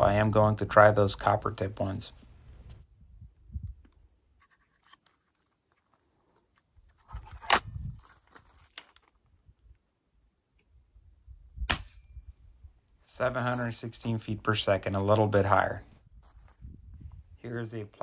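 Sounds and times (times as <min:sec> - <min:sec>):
air rifle barrel snapping shut: 0:07.3 - 0:07.8.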